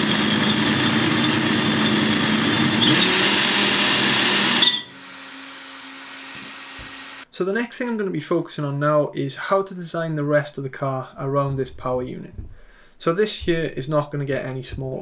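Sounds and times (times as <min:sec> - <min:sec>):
electric motors spinning gears: 0:00.0 - 0:07.2.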